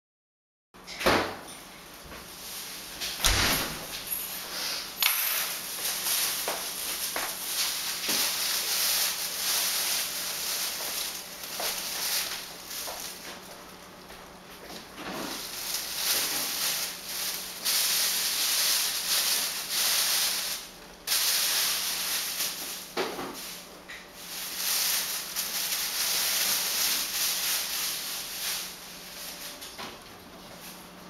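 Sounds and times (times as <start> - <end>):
plastic bags rustling: 2.3 - 31.0.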